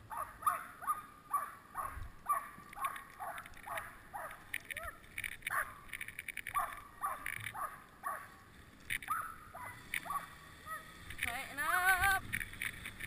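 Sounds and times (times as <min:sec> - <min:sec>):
huskies yipping: 0:00.0 - 0:05.9, 0:06.5 - 0:08.4, 0:09.0 - 0:11.0
dog sled runners on snow: 0:00.0 - 0:13.0.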